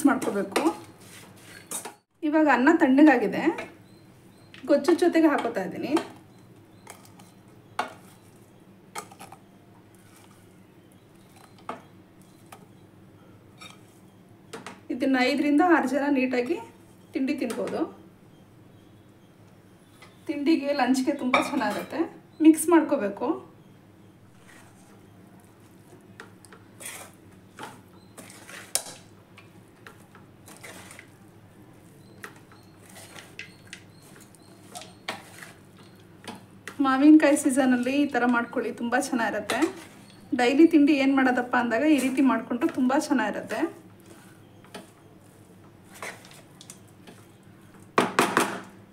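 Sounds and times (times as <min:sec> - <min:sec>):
wooden spatula scraping metal pan: 0:24.3 - 0:25.8, 0:26.8 - 0:29.0, 0:29.9 - 0:31.2, 0:32.0 - 0:35.7, 0:39.3 - 0:40.2, 0:41.8 - 0:46.5.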